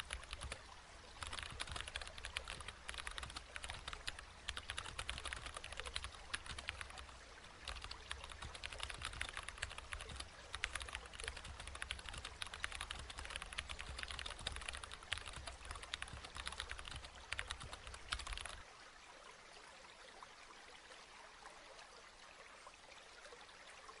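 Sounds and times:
fast keyboard typing: 0:00.0 - 0:00.6, 0:01.2 - 0:18.6.

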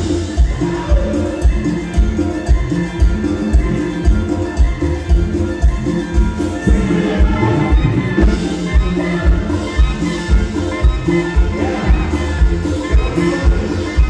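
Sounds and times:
trombones: 0:05.7 - 0:14.0.

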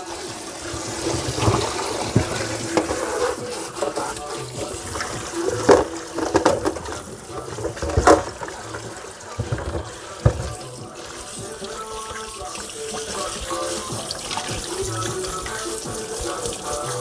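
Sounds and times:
tap running into a sink: 0:00.0 - 0:17.0
knocks in the sink: 0:04.9 - 0:10.8.

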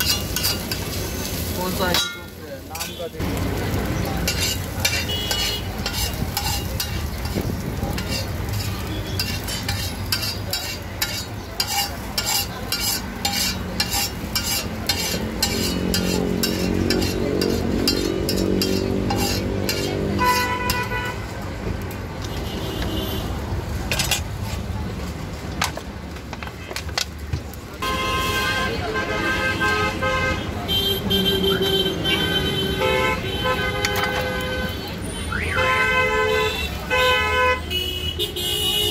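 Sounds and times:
metal spatula scraping a griddle: 0:00.0 - 0:03.1, 0:03.9 - 0:21.2, 0:23.9 - 0:24.7
light sizzling: 0:00.0 - 0:23.0.

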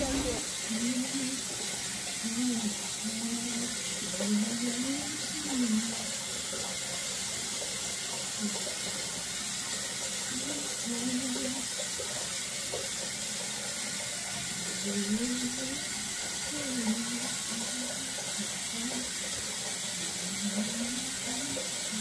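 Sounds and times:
low voice: 0:00.0 - 0:01.3.

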